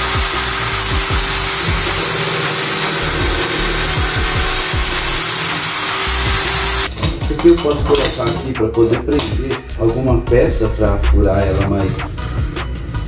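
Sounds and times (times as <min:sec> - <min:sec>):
electric drill boring into wood: 0:00.0 - 0:06.9.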